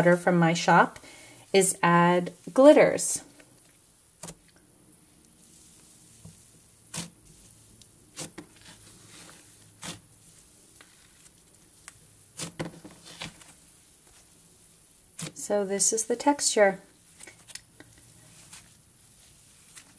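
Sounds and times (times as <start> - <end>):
slime squishing: 5.2 - 15.4, 16.9 - 19.9.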